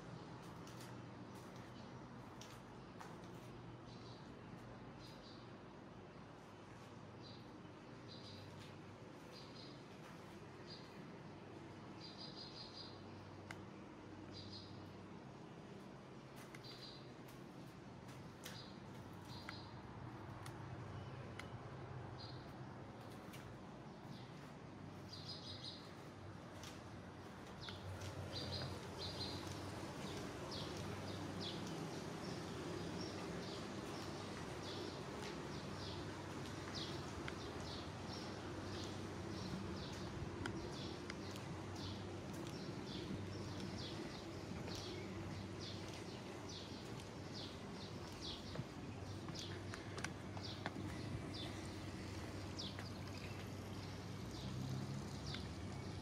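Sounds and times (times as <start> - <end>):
small birds chirping: 0.0 - 15.2, 16.2 - 21.6, 22.2 - 56.0
steady low hum: 13.0 - 56.0.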